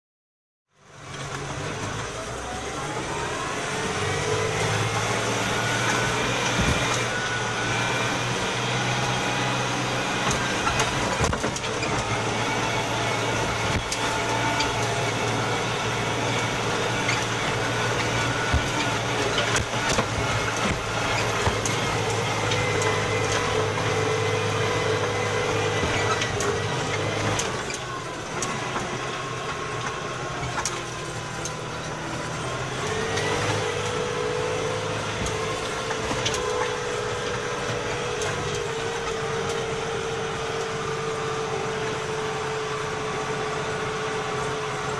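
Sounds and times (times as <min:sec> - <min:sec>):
tractor diesel engine running: 0:00.7 - 0:44.9.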